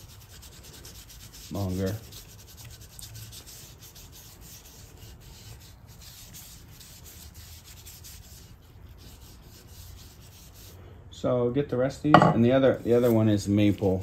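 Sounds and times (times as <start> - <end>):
cloth rag rubbing on wood: 0.0 - 10.8, 12.6 - 14.0.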